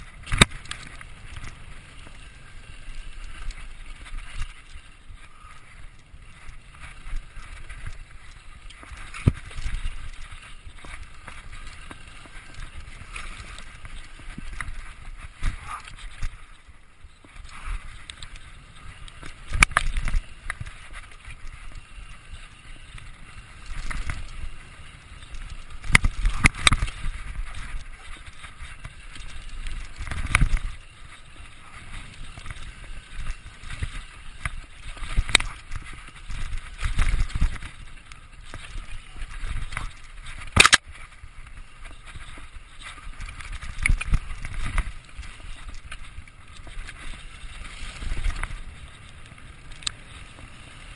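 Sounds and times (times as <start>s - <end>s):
bike rattling: 0.0s - 50.9s
bike tyres on dirt trail: 0.0s - 50.9s.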